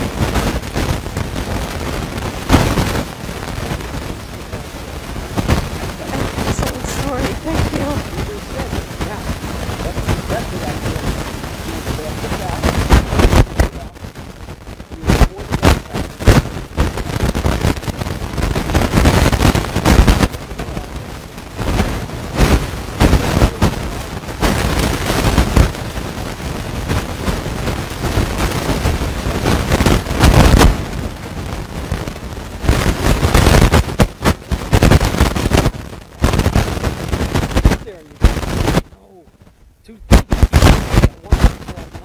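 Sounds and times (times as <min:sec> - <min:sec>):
rumbling crackling audio distortion: 0:00.0 - 0:42.0
man talking: 0:03.9 - 0:05.0, 0:06.0 - 0:14.1, 0:14.9 - 0:16.5, 0:20.3 - 0:21.4, 0:23.0 - 0:24.1, 0:37.6 - 0:38.3, 0:38.9 - 0:42.0.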